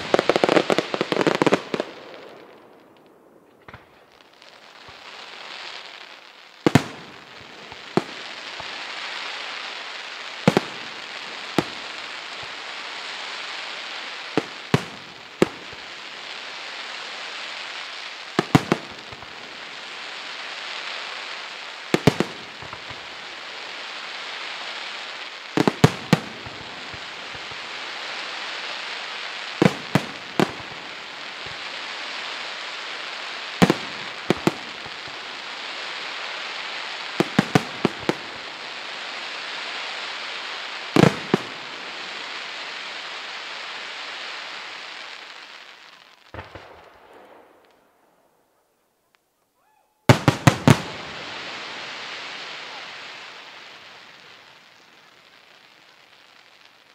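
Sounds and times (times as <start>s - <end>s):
fireworks hissing: 0.0s - 47.7s, 50.1s - 56.9s
firework shells bursting: 46.3s - 47.9s, 50.0s - 53.1s.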